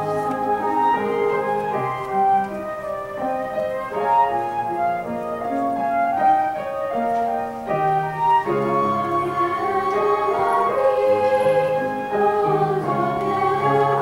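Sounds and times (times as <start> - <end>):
choir singing: 0.0 - 2.5, 8.2 - 14.0
flute melody: 0.0 - 14.0
piano accompaniment: 0.0 - 14.0.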